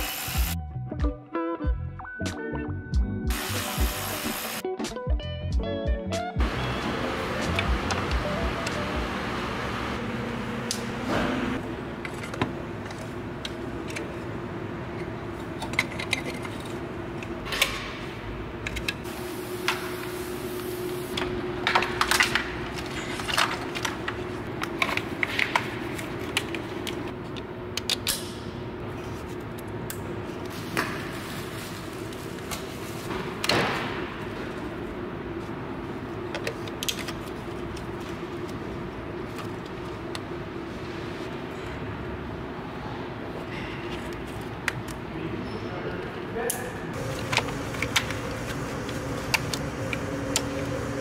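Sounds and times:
tools clicking and clattering: 15.5s - 17.9s.

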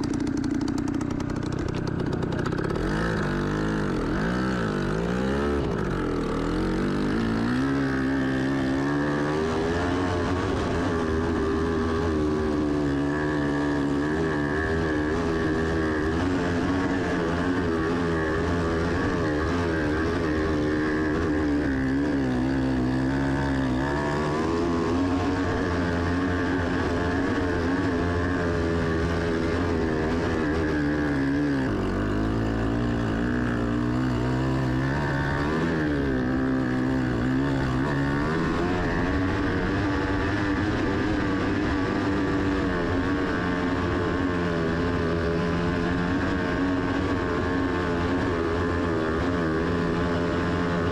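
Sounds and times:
off-road vehicle engine under load: 0.0s - 50.9s.

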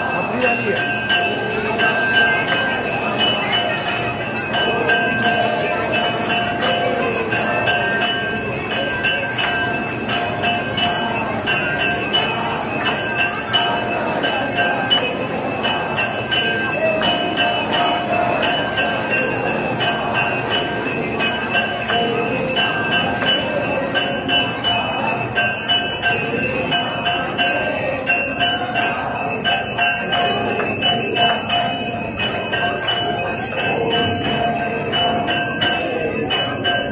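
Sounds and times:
bells rung rapidly: 0.0s - 36.9s
hubbub of dense crowd: 0.0s - 36.9s.

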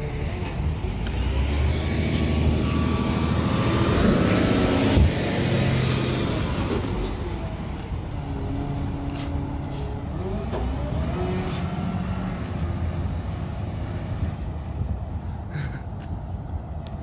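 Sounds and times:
garbage truck driving past: 1.2s - 12.4s.

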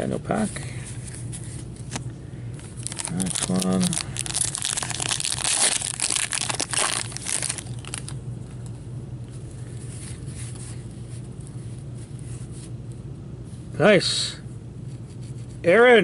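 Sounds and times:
cards rustling: 0.8s - 8.6s
wrapper crinkling: 2.7s - 8.2s.

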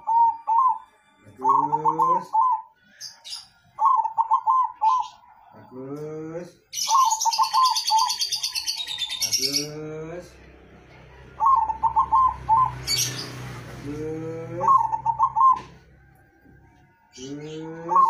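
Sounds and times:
dove cooing song: 0.0s - 5.5s, 6.8s - 9.8s, 11.2s - 16.4s, 17.0s - 18.0s
loud high rapid chirping: 11.4s - 13.5s.

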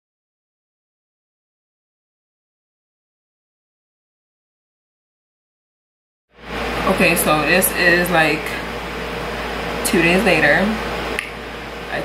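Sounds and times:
low room tone hum: 6.4s - 12.0s
woman speaking: 6.8s - 8.7s, 9.8s - 10.8s.

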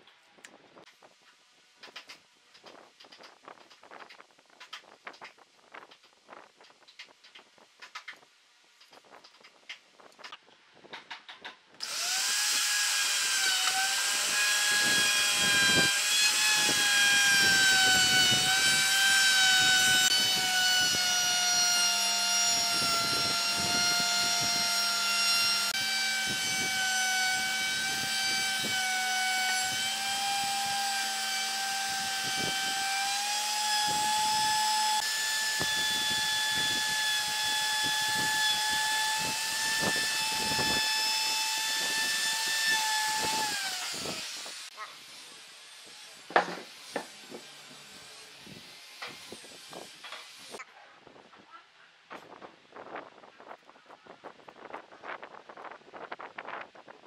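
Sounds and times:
power tool motor whining: 11.8s - 50.6s.

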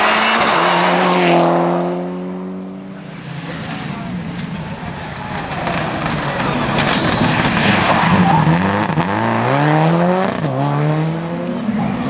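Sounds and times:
rally car engine: 0.0s - 12.0s
tyre noise on wet tarmac: 4.0s - 9.6s.

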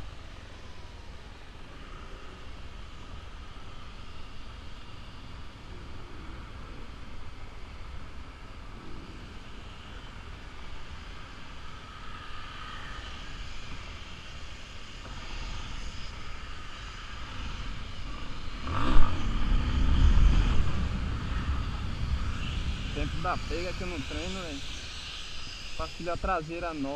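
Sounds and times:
motorcycle engine revving: 18.1s - 24.0s.

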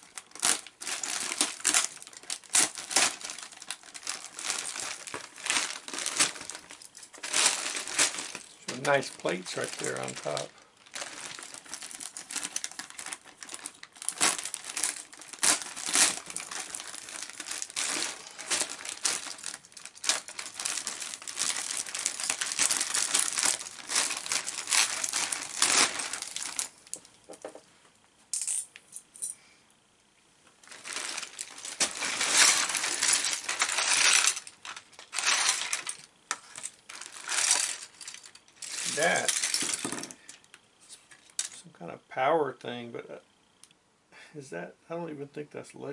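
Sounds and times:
plastic bricks rattling: 0.0s - 26.7s, 30.6s - 40.4s
plastic bag crinkling: 0.0s - 27.1s, 30.6s - 41.6s.

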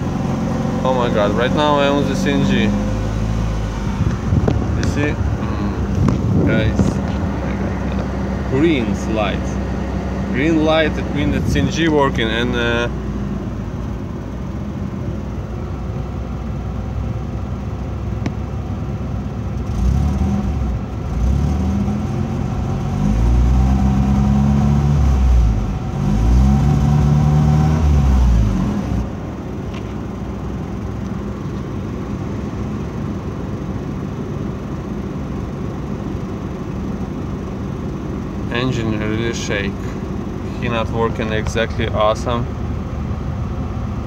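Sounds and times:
car engine idling roughly: 29.2s - 44.0s.

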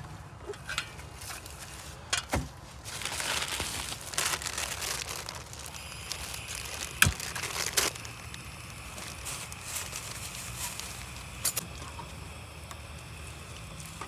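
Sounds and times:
dry leaves crinkling: 0.9s - 14.0s
plastic bags crinkling: 1.1s - 11.6s
gas stove hissing: 4.4s - 14.0s.

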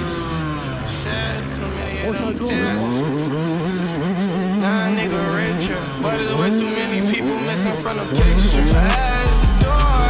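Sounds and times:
background music: 4.6s - 10.0s.

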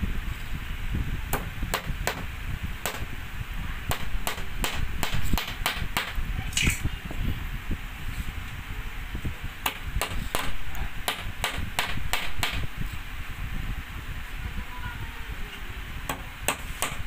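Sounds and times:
hammer tapping nails into wood: 1.3s - 3.1s, 3.9s - 6.2s, 9.6s - 12.7s, 16.1s - 17.0s.

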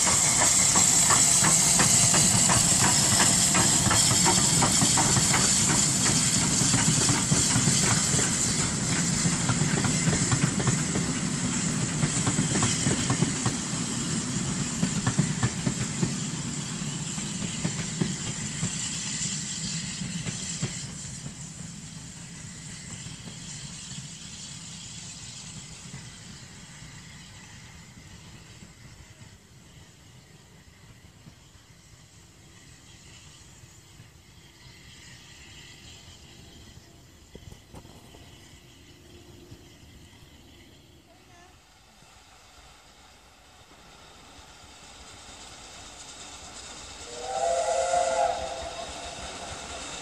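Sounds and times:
coaches clicking over rail joints: 0.0s - 19.1s
steam locomotive hissing: 0.0s - 50.0s.

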